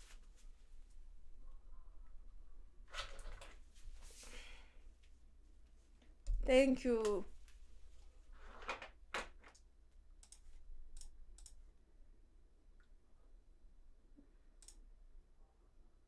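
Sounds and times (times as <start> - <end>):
faint sharp clicks: 10.2 - 10.4, 11.0 - 11.6, 14.6 - 14.8.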